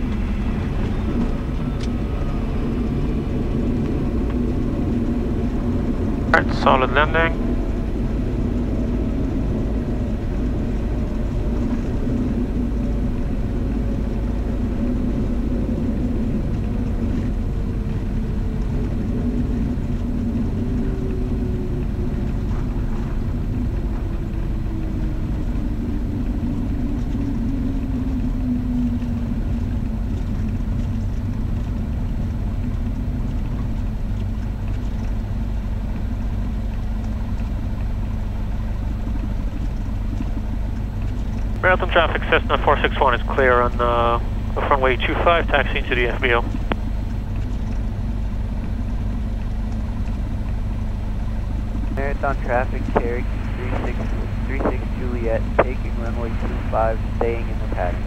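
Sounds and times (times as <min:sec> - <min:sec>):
airplane engine idling: 0:00.0 - 0:58.0.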